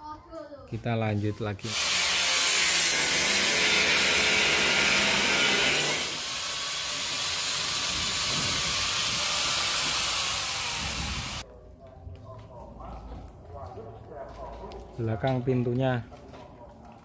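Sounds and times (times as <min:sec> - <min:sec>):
angle grinder grinding steel: 0:01.6 - 0:11.4.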